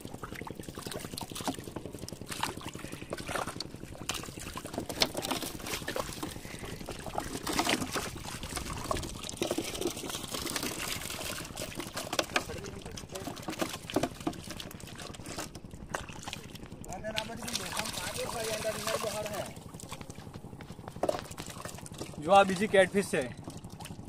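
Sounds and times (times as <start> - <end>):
water splashing and dripping: 0.2 - 15.1, 15.9 - 20.1.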